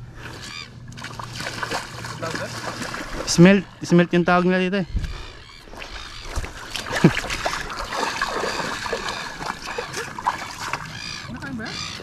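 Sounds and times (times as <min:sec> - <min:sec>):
hands splashing in water: 0:05.7 - 0:11.1.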